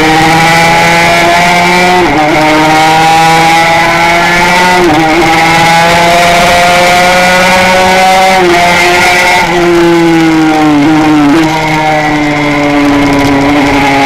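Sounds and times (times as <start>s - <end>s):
two-stroke engine at full throttle: 0.0s - 14.0s.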